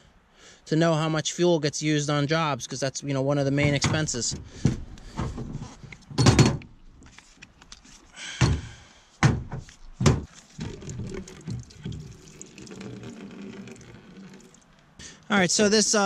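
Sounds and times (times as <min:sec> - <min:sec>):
fuel pouring into plastic bucket: 0:10.3 - 0:14.8.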